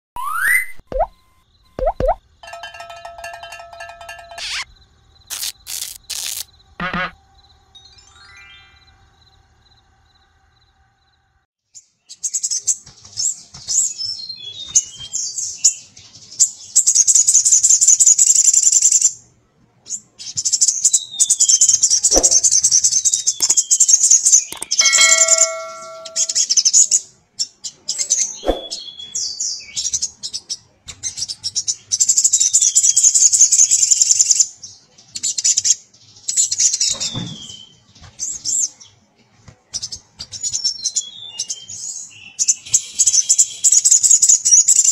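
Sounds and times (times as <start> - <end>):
sunbird singing trilled notes: 0.2 - 6.5, 21.4 - 26.6.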